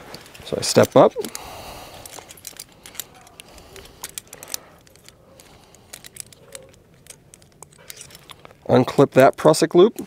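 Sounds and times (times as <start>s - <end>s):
climbing hardware clinking: 0.0s - 10.0s.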